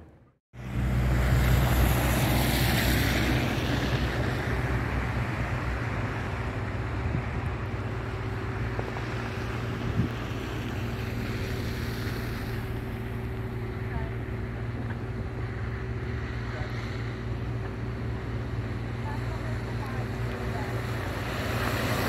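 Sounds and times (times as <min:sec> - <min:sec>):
low engine hum: 0:00.0 - 0:22.0
wind on microphone: 0:01.8 - 0:13.8
tyres hissing through slush: 0:08.6 - 0:14.5, 0:19.0 - 0:22.0.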